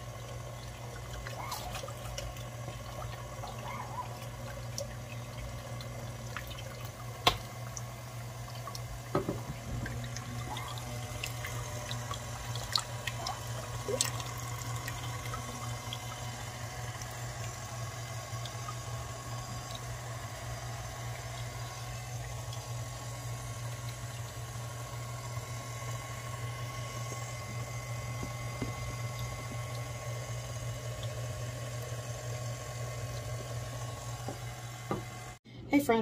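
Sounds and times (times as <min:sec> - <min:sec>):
wet squishing and dripping: 0:00.0 - 0:09.1, 0:09.7 - 0:24.4
stand mixer motor running: 0:00.0 - 0:35.4.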